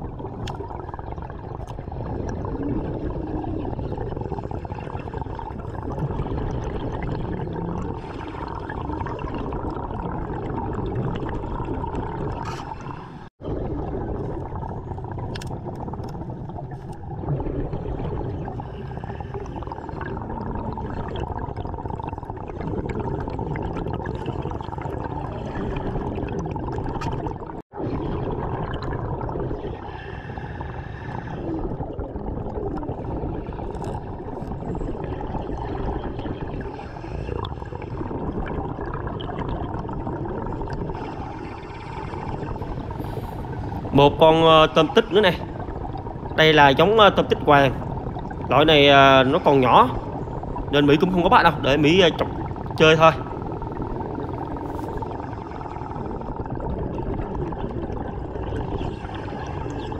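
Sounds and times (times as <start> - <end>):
air bubbling underwater: 0.0 - 59.9
diver breathing through regulator: 29.8 - 31.8.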